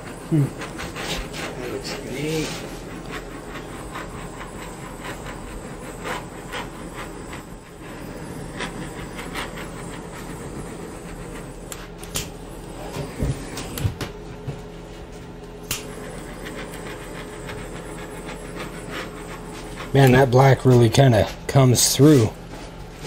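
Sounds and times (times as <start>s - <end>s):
torch flame hissing: 0.0s - 23.0s.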